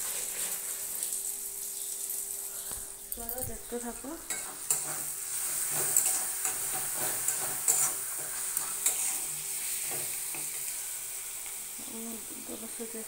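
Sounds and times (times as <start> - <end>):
food sizzling in oil: 0.0 - 13.0
spatula scraping a pan: 4.3 - 10.9.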